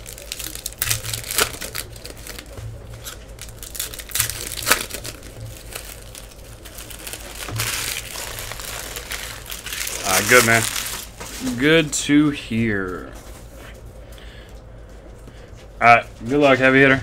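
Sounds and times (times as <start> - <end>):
foil wrappers crinkling and tearing: 0.0 - 12.0.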